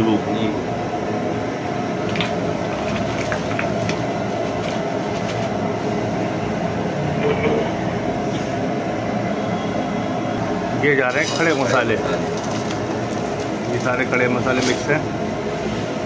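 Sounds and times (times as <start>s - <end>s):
gas burner roaring: 0.0s - 16.0s
plastic bag crinkling: 2.1s - 5.6s, 11.1s - 15.0s.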